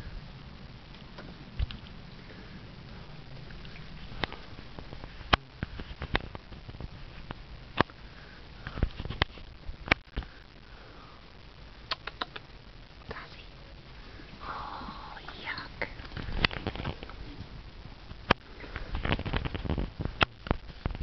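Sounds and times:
dog drooling clicks and smacks: 11.9s - 12.5s.

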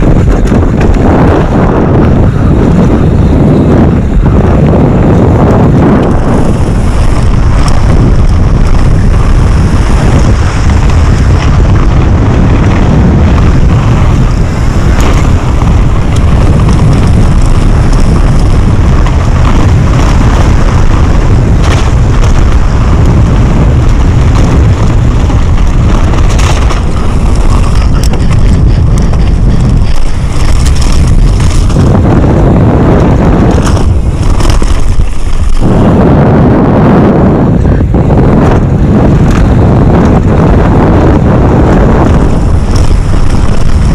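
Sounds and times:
tyres on loose dirt: 0.0s - 43.9s
wind buffeting microphone: 0.0s - 43.9s
bike knocking over rough ground: 6.1s - 35.6s.

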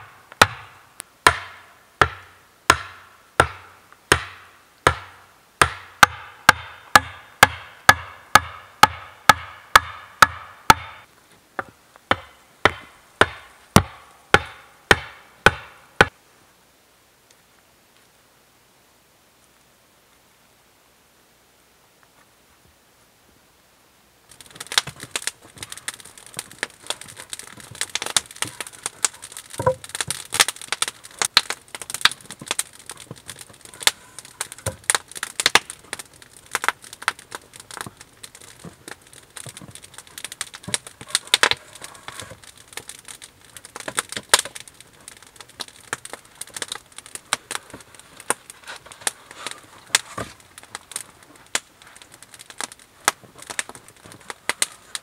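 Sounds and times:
campfire crackling: 0.0s - 55.0s.

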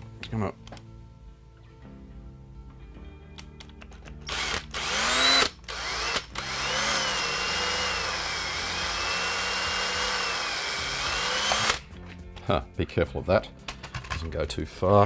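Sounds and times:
cordless drill whining through plastic: 4.3s - 11.8s.

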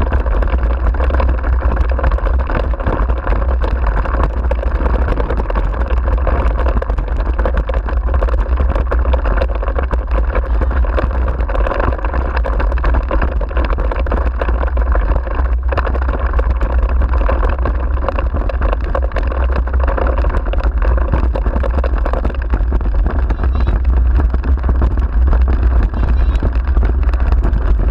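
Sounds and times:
low wind rumble on microphone: 0.0s - 27.9s
wheels and frame rattling: 0.0s - 27.9s.

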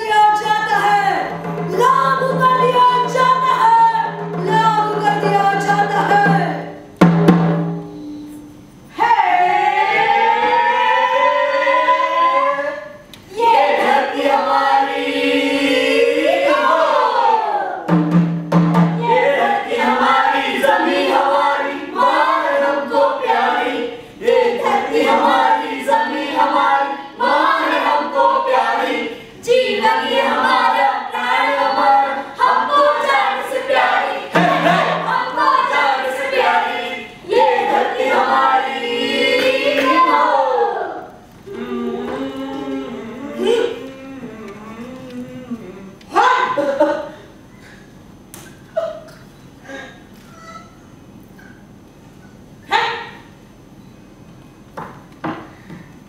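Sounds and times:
group of voices singing: 8.9s - 17.9s, 19.0s - 46.0s.

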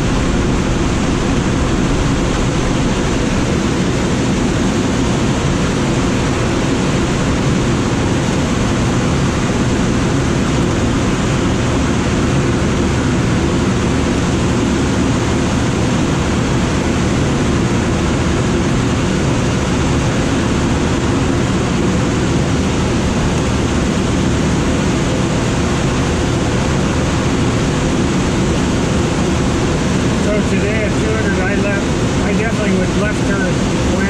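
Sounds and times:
low rumble: 0.0s - 10.9s
air rushing over glider canopy: 0.0s - 31.2s.

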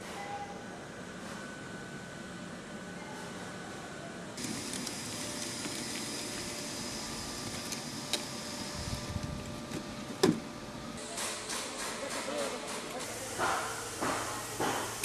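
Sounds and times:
woodworking machinery running: 4.4s - 15.0s.

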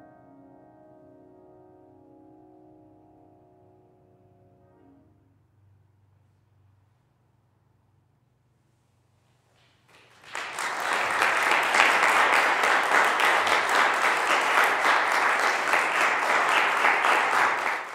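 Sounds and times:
audience applauding: 9.9s - 17.9s.

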